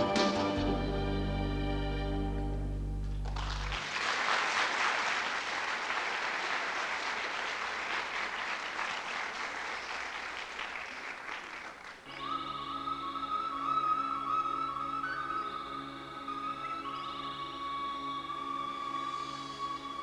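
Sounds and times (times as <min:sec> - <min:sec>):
music with high melody: 0:00.0 - 0:03.0
audience applauding: 0:03.2 - 0:12.1.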